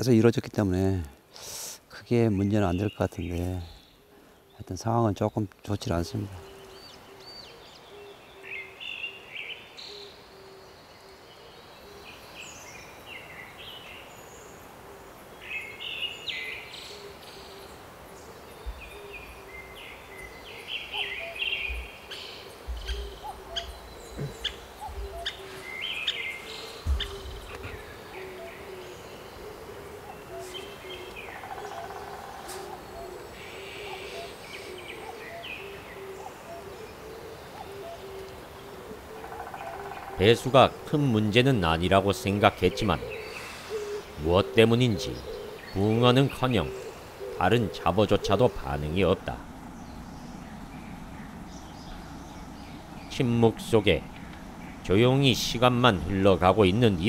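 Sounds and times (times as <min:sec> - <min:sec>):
birds chirping and singing: 0:00.0 - 0:57.0
low repeated bird note: 0:18.6 - 0:57.0
dull low thumps: 0:22.6 - 0:25.3, 0:26.7 - 0:27.9, 0:49.2 - 0:56.4.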